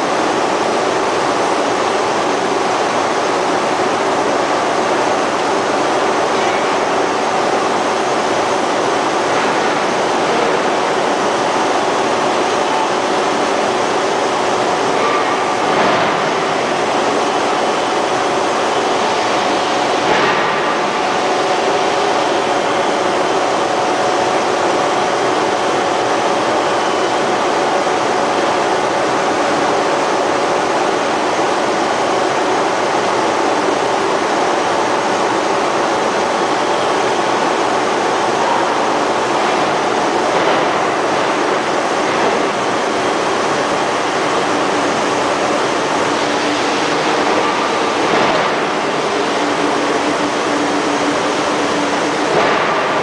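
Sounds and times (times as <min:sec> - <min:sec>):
rolling mill mechanical noise: 0:00.0 - 0:53.0.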